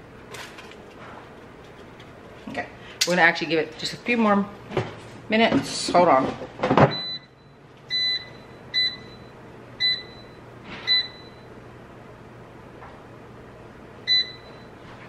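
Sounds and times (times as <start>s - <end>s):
low steady hum: 0.0s - 15.0s
microwave keypad beeps: 6.9s - 11.5s, 14.1s - 14.8s.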